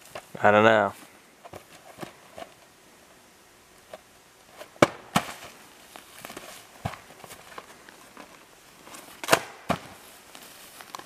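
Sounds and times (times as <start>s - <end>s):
rustling in grass: 3.8s - 11.0s
box knocking against tree and ground: 4.6s - 5.6s, 6.2s - 7.7s, 9.2s - 10.0s.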